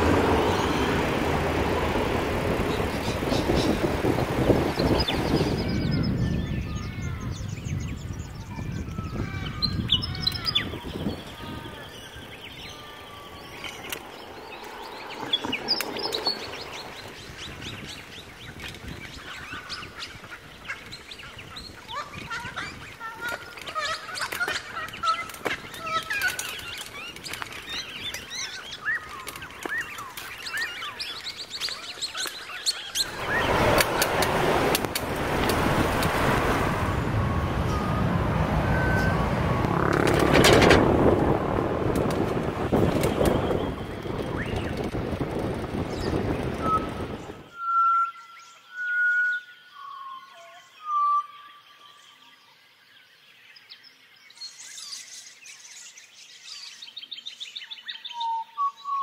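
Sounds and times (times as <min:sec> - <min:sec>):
bicycle rolling on gravel: 0:00.0 - 0:05.6, 0:10.9 - 0:19.1, 0:25.3 - 0:32.1, 0:32.9 - 0:47.5
wind rush and road noise: 0:00.0 - 0:47.5
birds chirping: 0:00.0 - 0:59.0.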